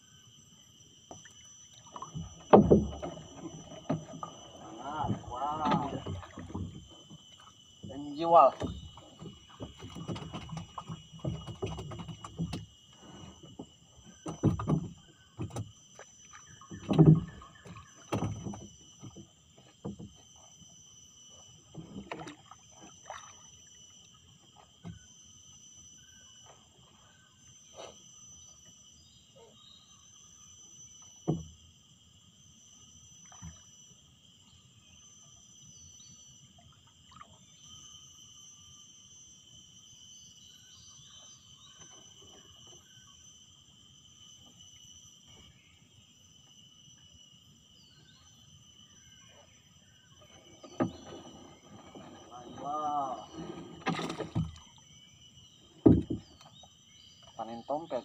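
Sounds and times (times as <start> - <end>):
high-pitched insect chorus: 0.0 - 58.0
knocks and thumps in wooden boat: 1.0 - 25.2, 31.0 - 31.7, 49.4 - 58.0.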